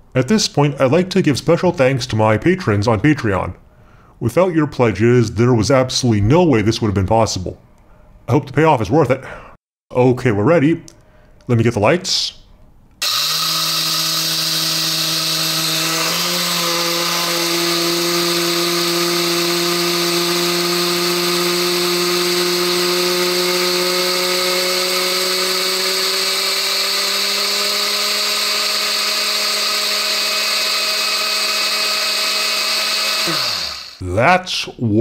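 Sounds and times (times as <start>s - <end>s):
blender motor running: 13.0s - 34.0s
crystals grinding in blender: 13.0s - 34.0s.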